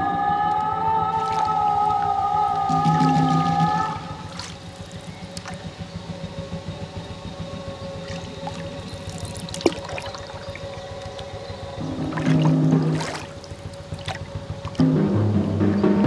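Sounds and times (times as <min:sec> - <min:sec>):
held electronic drone tone: 0:00.0 - 0:16.0
low pulsing hum: 0:00.0 - 0:16.0.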